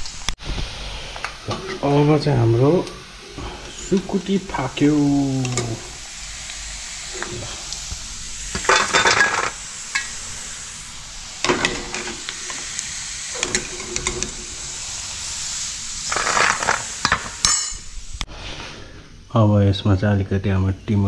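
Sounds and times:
meat sizzling in hot oil: 0.0s - 18.3s
ladle scraping and clinking on metal: 8.5s - 10.2s, 13.3s - 14.6s, 16.1s - 17.8s.

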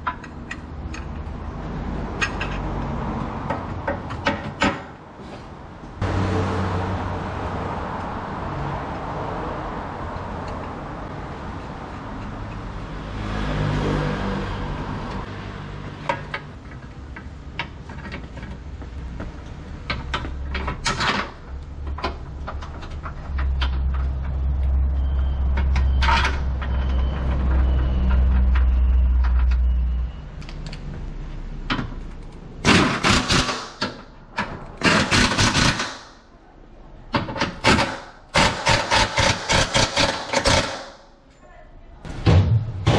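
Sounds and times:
pneumatic impact wrench rattling: 32.6s - 34.0s, 34.8s - 36.2s, 37.4s - 41.1s.

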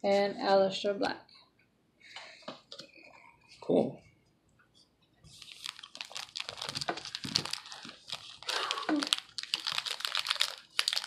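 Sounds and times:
plastic wrapper crinkling: 5.2s - 11.0s.

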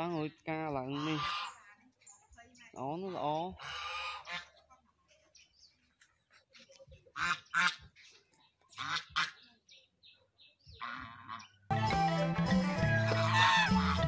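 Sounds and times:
goose honking: 0.8s - 1.6s, 3.5s - 4.6s, 7.1s - 7.9s, 8.7s - 9.4s, 10.8s - 11.6s, 12.8s - 14.0s.

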